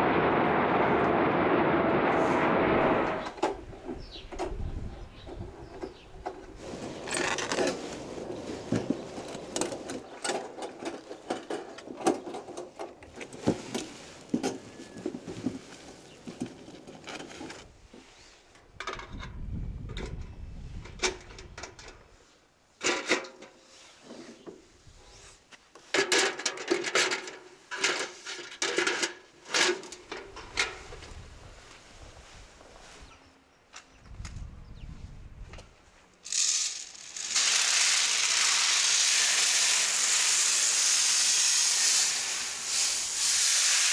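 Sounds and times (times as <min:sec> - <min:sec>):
wire mesh clinking on metal buckets: 0:26.0 - 0:30.8, 0:36.2 - 0:37.9.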